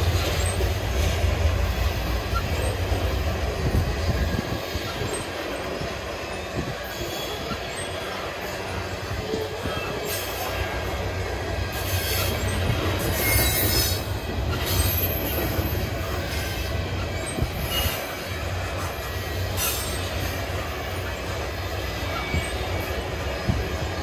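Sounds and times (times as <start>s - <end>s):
train wheels rumbling on rail: 0.0s - 24.0s
high-pitched wheel squeals: 3.7s - 10.8s, 11.8s - 20.8s, 21.8s - 23.5s.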